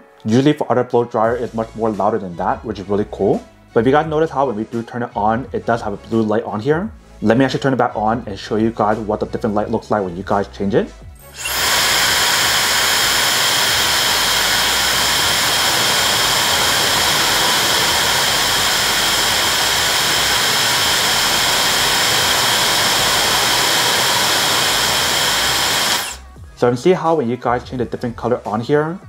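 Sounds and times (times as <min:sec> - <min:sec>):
hair dryer blowing: 0:11.2 - 0:26.3.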